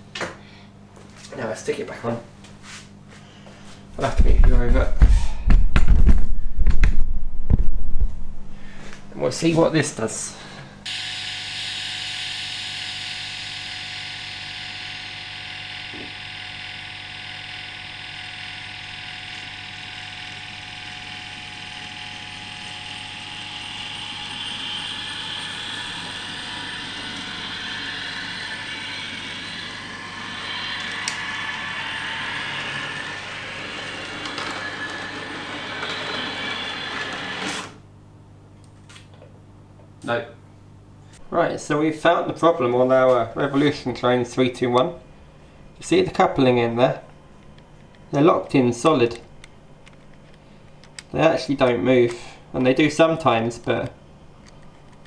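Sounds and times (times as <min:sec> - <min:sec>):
model train motor and wheels: 0:10.9 - 0:37.7
electric train running sound: 0:10.9 - 0:37.8.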